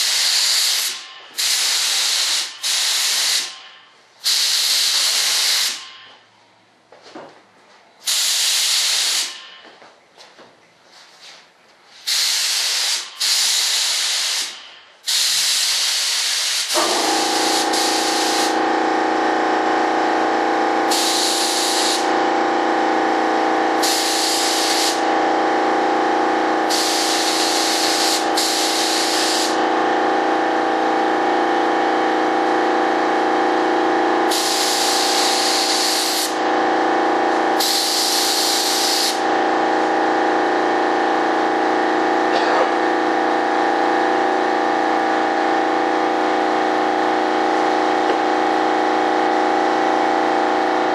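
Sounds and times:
spray gun hissing in bursts: 0.0 - 6.1, 8.0 - 9.6, 12.0 - 18.6, 20.9 - 22.2, 23.8 - 25.1, 26.5 - 29.6, 34.3 - 36.5, 37.6 - 39.3
steady machine hum: 16.8 - 50.9.

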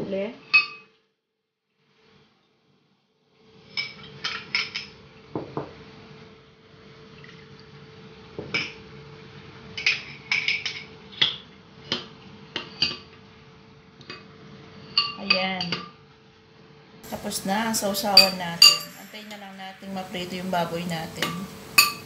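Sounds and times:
faint steady hum: 16.0 - 22.0
metal spoon clinking glass bowls: 17.1 - 22.0.

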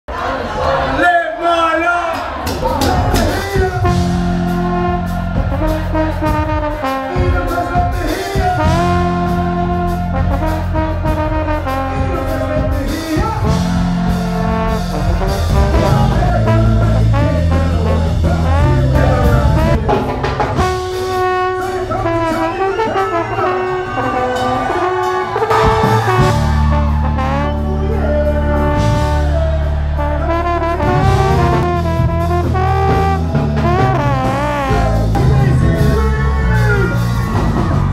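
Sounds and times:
drums: 2.0 - 37.9
bass line: 2.4 - 37.9
trombone playing: 2.9 - 37.9.

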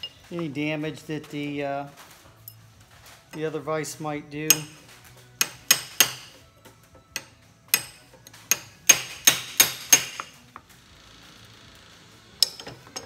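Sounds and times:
hammer tapping steel punch: 4.5 - 6.4, 7.0 - 10.4.

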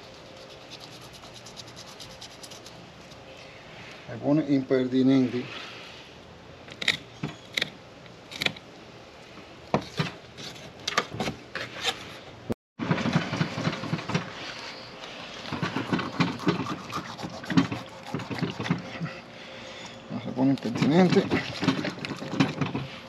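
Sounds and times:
knife cutting fish skin: 15.8 - 18.8.

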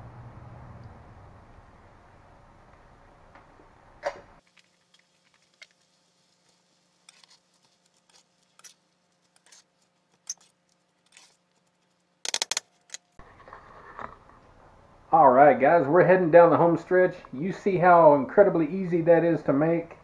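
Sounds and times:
utensil scraping a steel pan: 7.0 - 11.5.

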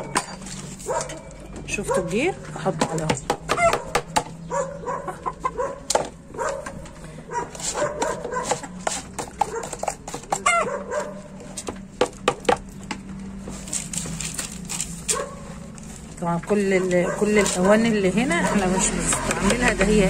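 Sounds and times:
hens clucking: 2.9 - 11.3.

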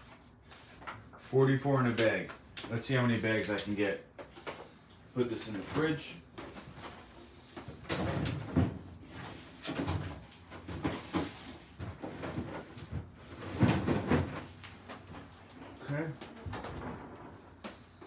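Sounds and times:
refrigerator door opening and shutting: 7.8 - 9.0, 15.8 - 17.6.

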